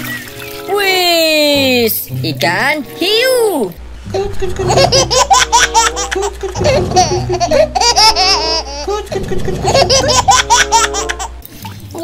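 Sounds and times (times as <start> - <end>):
toy shark laughing: 4.1 - 11.3.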